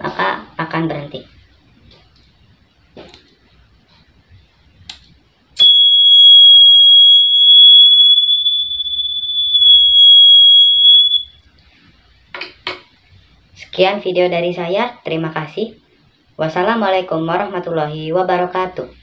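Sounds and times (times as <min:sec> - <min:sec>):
high buzzer tone: 0:05.6 - 0:11.4.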